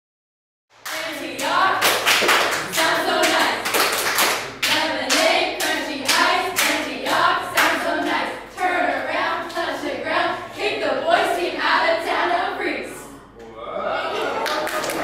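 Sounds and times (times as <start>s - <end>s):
hands clapping in rhythm: 0.7s - 8.7s, 14.4s - 15.0s
girls singing a chant: 0.8s - 13.2s.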